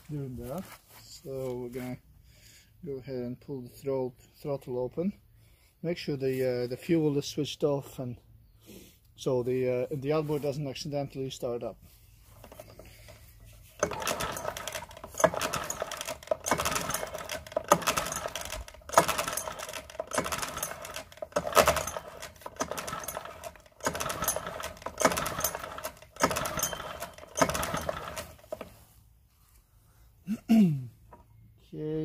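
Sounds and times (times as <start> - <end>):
outboard engine pull-cord cranking: 12.4 - 28.8.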